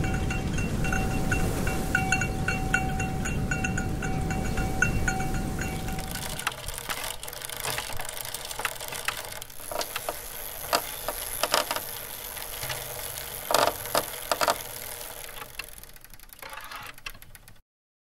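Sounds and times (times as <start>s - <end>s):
bicycle ticking and rattling: 0.0s - 17.6s
loud bicycle clicks: 5.5s - 17.6s.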